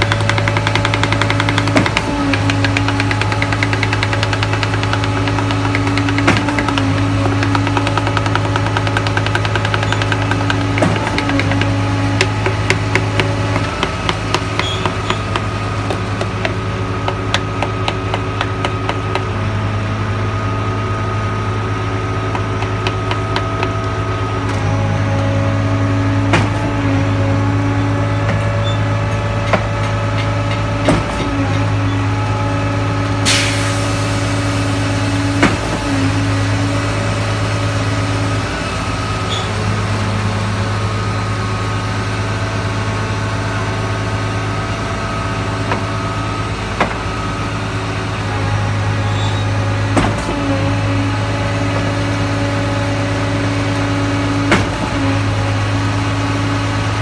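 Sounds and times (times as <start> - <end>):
sharp knocks: 0.0 - 19.3
diesel engine humming: 0.0 - 57.0.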